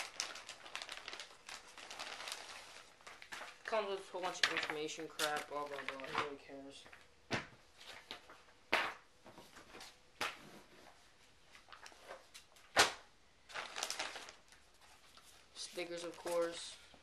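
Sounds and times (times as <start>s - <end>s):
plastic bag crinkling: 0.0s - 6.4s, 13.4s - 16.7s.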